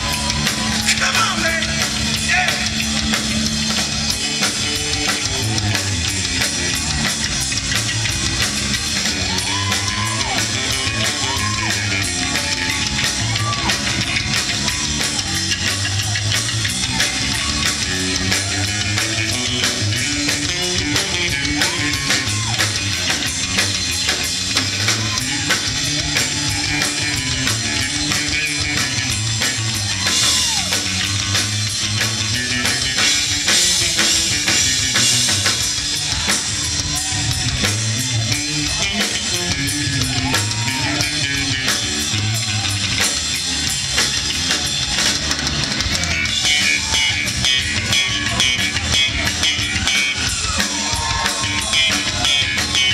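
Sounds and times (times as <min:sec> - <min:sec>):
bass guitar: 0:00.0 - 0:52.9
drum kit: 0:00.0 - 0:52.9.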